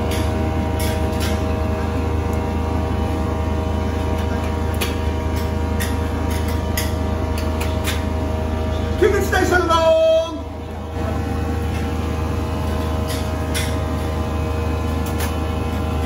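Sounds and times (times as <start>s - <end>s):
kitchen equipment humming: 0.0s - 16.0s.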